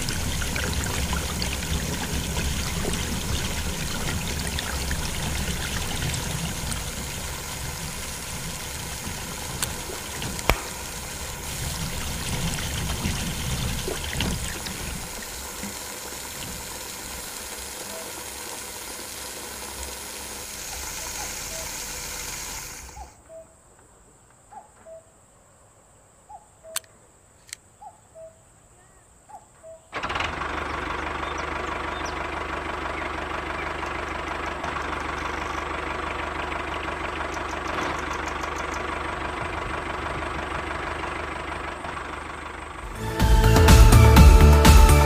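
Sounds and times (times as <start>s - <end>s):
water pouring and splashing: 0.0s - 23.0s
sharp click: 10.4s - 10.8s, 26.7s - 27.6s.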